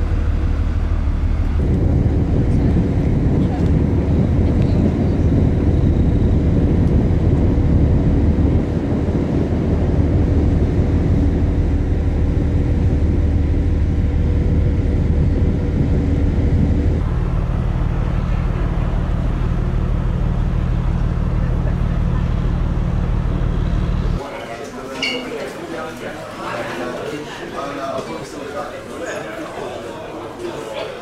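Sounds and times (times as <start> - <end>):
lower drone: 0.0 - 24.2
low machinery hum: 0.0 - 24.3
thin steady whine: 0.0 - 24.3.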